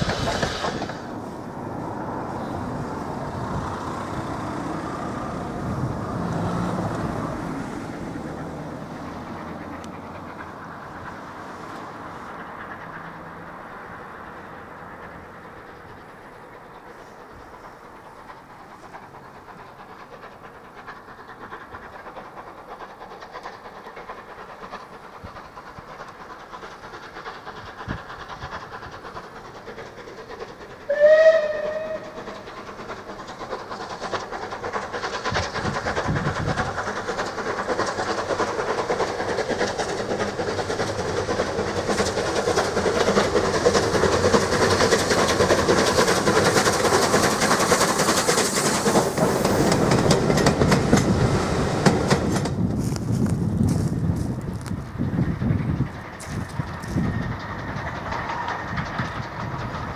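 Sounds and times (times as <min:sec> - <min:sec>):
steam locomotive running: 0:00.0 - 0:59.9
steam whistle blast: 0:30.9 - 0:32.2.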